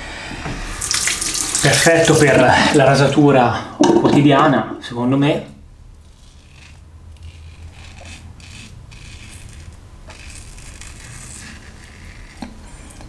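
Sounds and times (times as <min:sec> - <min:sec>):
razor scraping stubble: 0:06.0 - 0:13.0.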